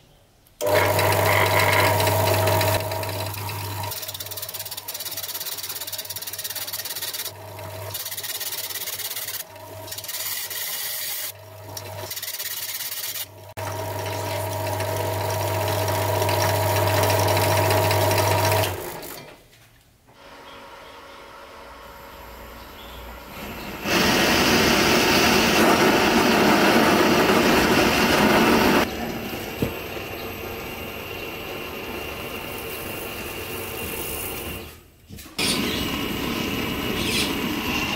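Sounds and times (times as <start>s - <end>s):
drill press motor hum: 0.6s - 12.2s, 20.2s - 34.8s.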